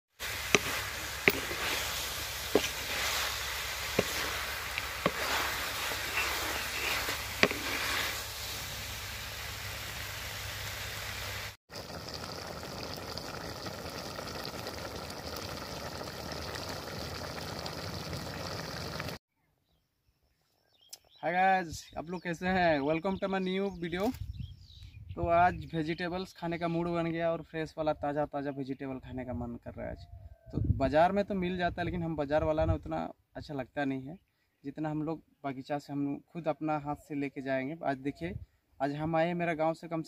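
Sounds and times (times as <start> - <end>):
vegetables sizzling in a pan: 0.2 - 19.2.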